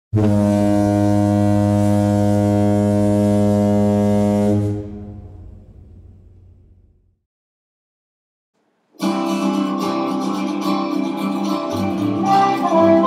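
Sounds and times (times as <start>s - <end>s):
ship's horn blast: 0.1s - 6.0s, 12.3s - 13.0s.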